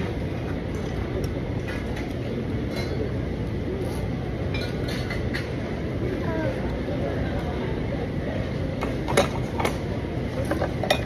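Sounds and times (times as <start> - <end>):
indoor crowd hum: 0.0 - 11.0
cutlery and dishes clinking: 2.7 - 3.1, 4.5 - 5.6, 10.4 - 11.0.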